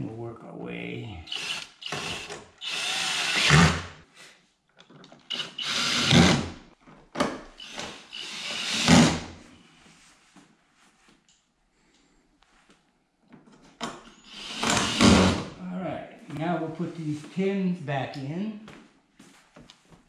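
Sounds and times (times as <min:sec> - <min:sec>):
cordless drill driving screws: 0:01.3 - 0:03.9, 0:05.2 - 0:06.5, 0:07.6 - 0:09.3, 0:14.1 - 0:15.5.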